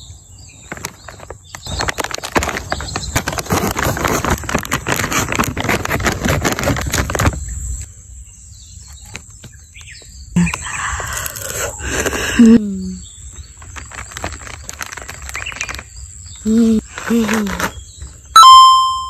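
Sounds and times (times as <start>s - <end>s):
plastic snack bag crackling: 0.6s - 7.5s, 11.0s - 12.6s, 13.3s - 18.0s.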